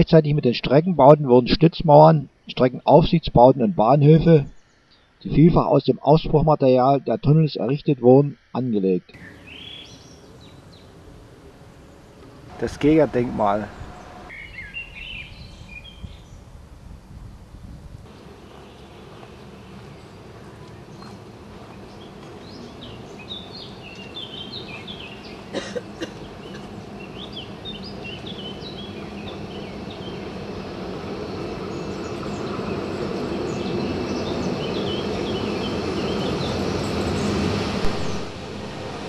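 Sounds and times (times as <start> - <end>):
birds chirping: 9.0 - 16.6, 18.1 - 39.0
electric locomotive approaching: 9.2 - 17.0, 18.1 - 39.0.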